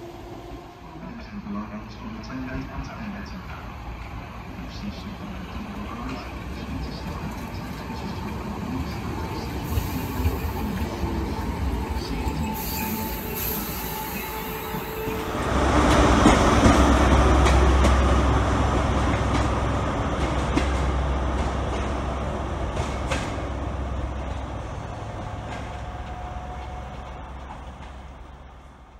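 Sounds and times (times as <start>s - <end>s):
diesel train low rumble: 0.0s - 28.9s.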